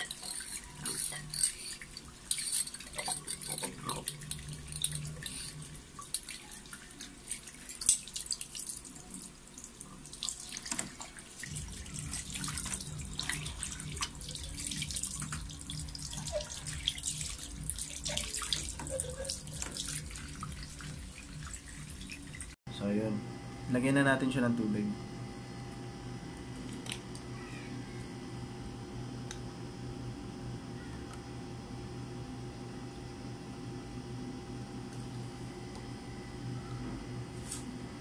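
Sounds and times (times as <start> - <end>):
tap water running into sink: 2.0 - 22.6.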